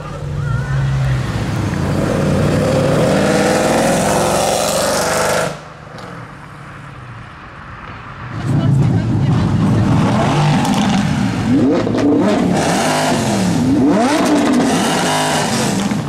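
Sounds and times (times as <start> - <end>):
car engine accelerating hard: 8.3 - 16.0.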